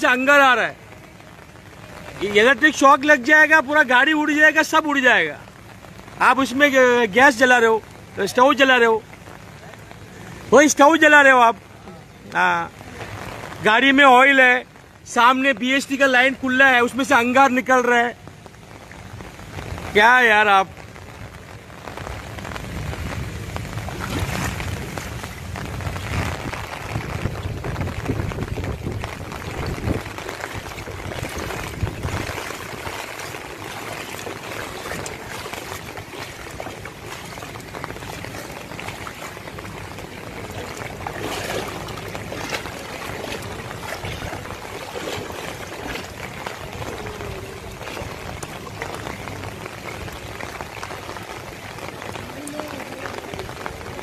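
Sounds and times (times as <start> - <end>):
rain and floodwater washing: 0.0 - 54.0
low rumble: 20.9 - 51.0.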